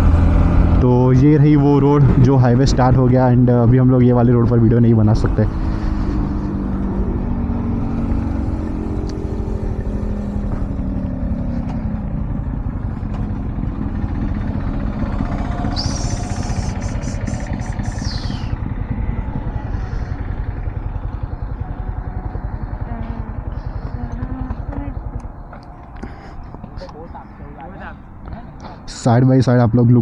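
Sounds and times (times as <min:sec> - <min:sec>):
motorcycle engine: 0:00.0 - 0:30.0
high-pitched squeal: 0:14.0 - 0:24.0.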